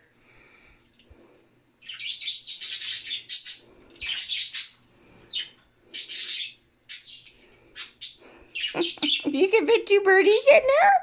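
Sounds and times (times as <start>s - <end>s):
budgerigars chirping: 1.8s - 9.3s.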